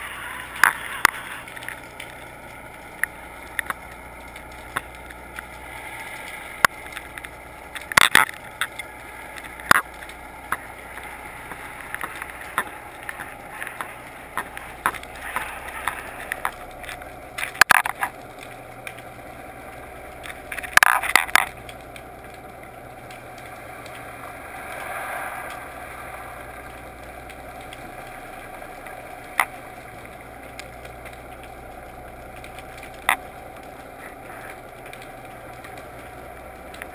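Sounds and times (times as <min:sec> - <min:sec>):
muffled underwater rush: 0:00.0 - 0:36.9
sharp clicks and knocks: 0:00.6 - 0:05.6, 0:06.6 - 0:19.1, 0:20.1 - 0:24.0.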